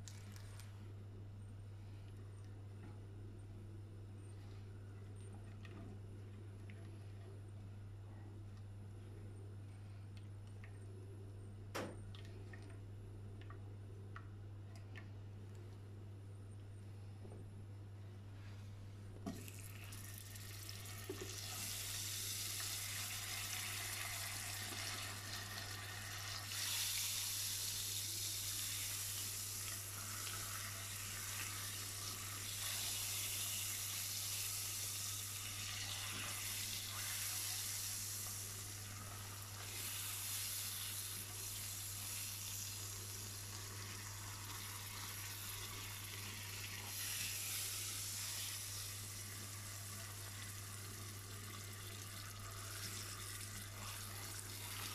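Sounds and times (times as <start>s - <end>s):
butter sizzling in a pan: 19.4s - 54.9s.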